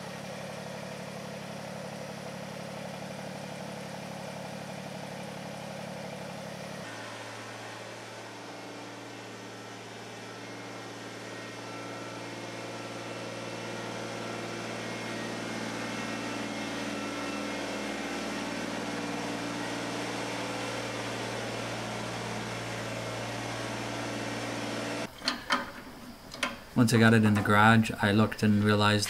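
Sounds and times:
tractor engine running: 0:00.0 - 0:29.0.

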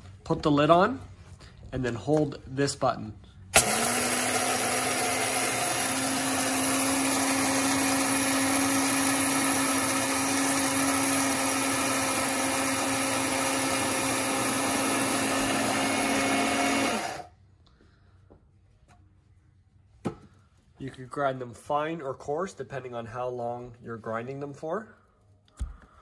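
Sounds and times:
coffee grinder grinding beans: 0:03.6 - 0:17.3.

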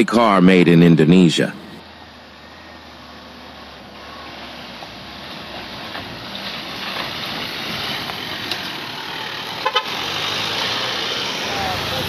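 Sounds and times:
truck engine and tyres: 0:00.0 - 0:12.0
vehicle horn toots: 0:09.6 - 0:10.2.

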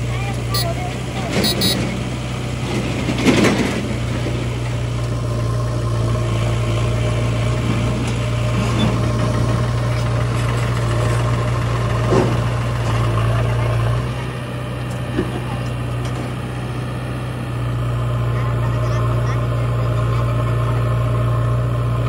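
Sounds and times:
diesel tractor engines idling: 0:00.0 - 0:22.0.

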